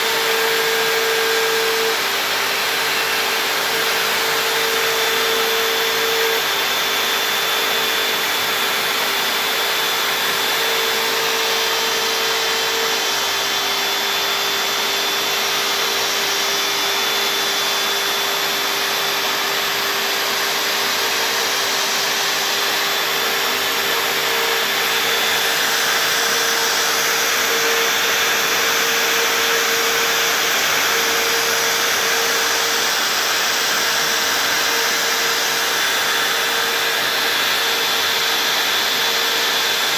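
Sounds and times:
router spindle whining: 0.0s - 39.9s.

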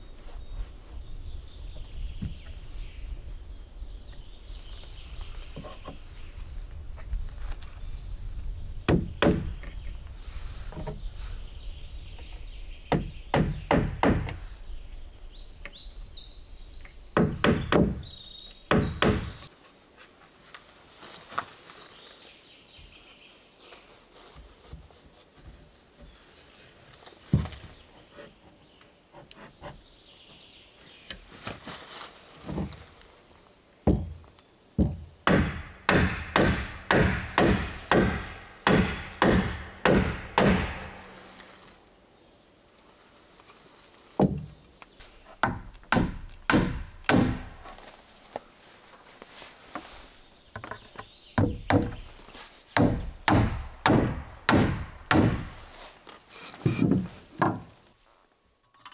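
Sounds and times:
hammer striking wooden boards: 8.9s - 9.6s, 12.9s - 14.4s, 17.2s - 18.1s, 18.7s - 19.4s, 34.8s - 41.2s, 45.4s - 47.7s, 51.4s - 52.1s, 52.8s - 55.7s.

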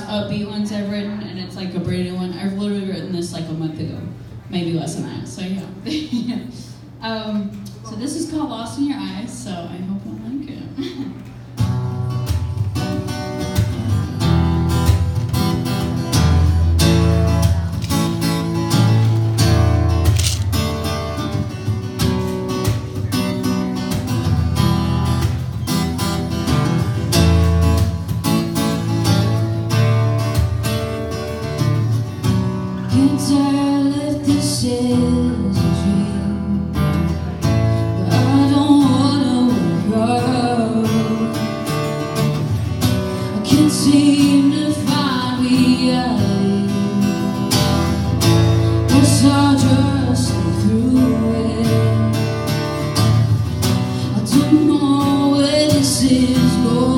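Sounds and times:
acoustic guitar strumming: 11.2s - 56.9s
woman singing: 32.8s - 36.8s, 38.0s - 41.6s, 43.3s - 47.4s, 48.9s - 52.2s, 54.0s - 56.9s.

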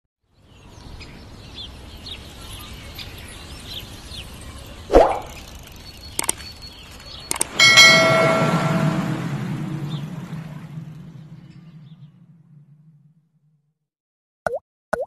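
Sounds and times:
birds chirping: 0.4s - 13.0s
mouse clicks: 7.3s - 7.5s
ringing chime: 7.4s - 9.7s
water drop plop: 14.5s - 15.0s.

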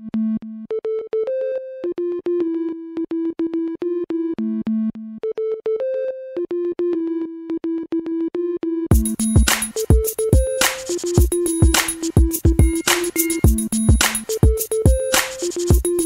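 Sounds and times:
bouncy synthesizer riff: 0.0s - 16.0s
drum beat of kick and cymbal: 8.9s - 16.0s.

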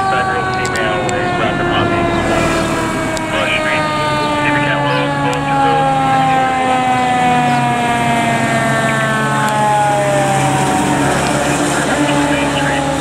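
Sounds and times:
fire engine siren wailing: 0.0s - 13.0s
truck engine: 0.0s - 13.0s.

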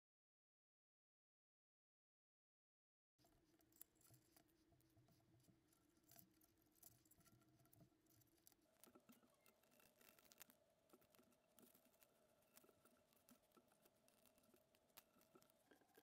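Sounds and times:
faint steady hum: 3.2s - 16.0s.

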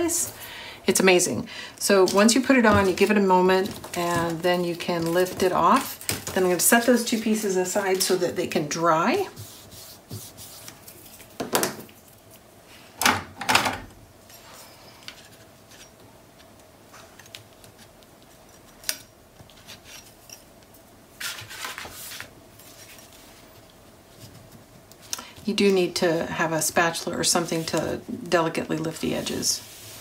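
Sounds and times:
paper rustling: 21.2s - 23.6s.

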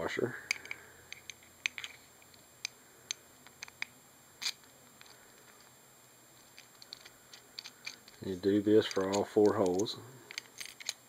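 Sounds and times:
small metal hardware clicking: 6.8s - 11.0s.

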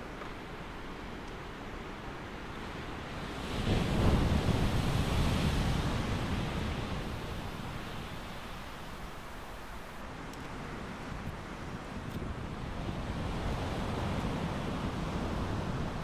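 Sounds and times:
wind rumble on microphone: 0.0s - 16.0s
wave breaking and washing in: 2.9s - 10.2s.

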